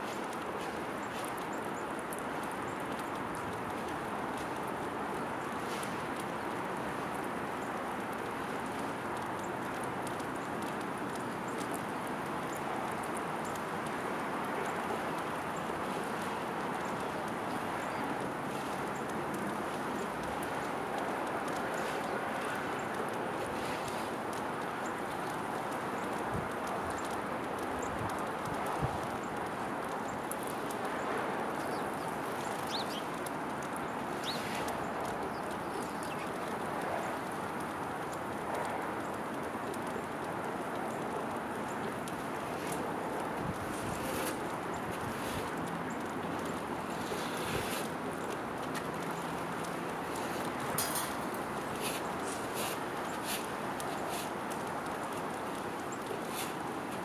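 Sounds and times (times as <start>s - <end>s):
outdoor background noise: 0.0s - 57.0s
faint high clicks: 0.2s - 57.0s
squirrel cracking seed shells: 29.4s - 57.0s.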